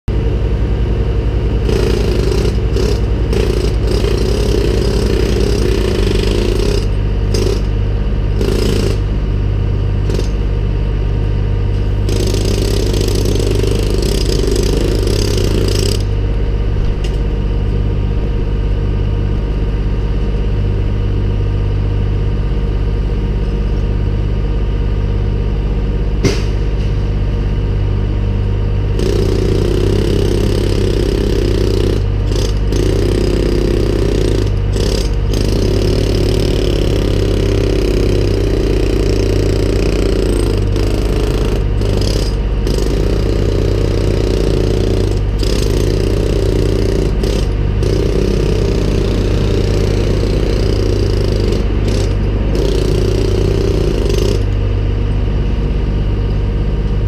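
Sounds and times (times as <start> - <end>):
engine idling: 0.0 - 23.8, 25.3 - 56.9
jackhammer breaking brick: 1.5 - 9.2, 9.9 - 10.5, 12.0 - 16.2, 29.0 - 54.6
sharp knock: 26.2 - 26.8.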